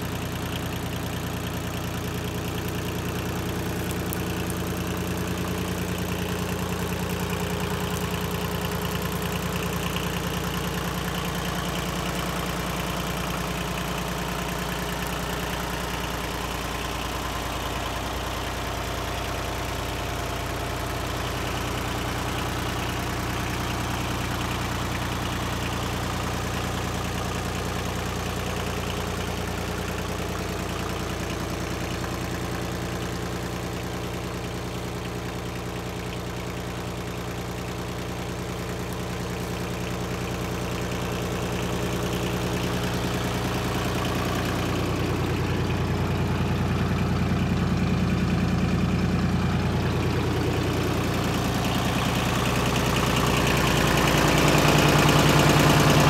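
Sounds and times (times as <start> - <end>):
tractor diesel engine idling: 0.0 - 56.0.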